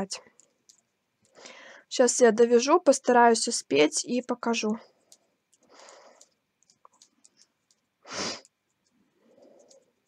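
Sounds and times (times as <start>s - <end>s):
knitting needles ticking: 0.0s - 1.5s, 4.7s - 10.0s
soft breathing: 1.2s - 1.9s, 4.8s - 6.4s, 8.0s - 10.0s.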